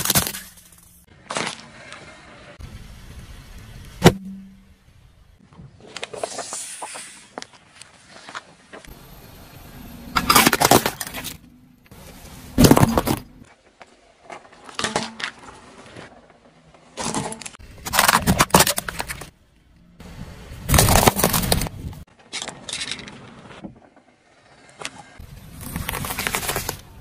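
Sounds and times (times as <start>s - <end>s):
tyre crushing brittle objects: 0.0s - 1.6s, 10.2s - 11.4s, 12.5s - 13.4s, 17.0s - 19.3s, 20.7s - 23.0s, 25.5s - 27.0s.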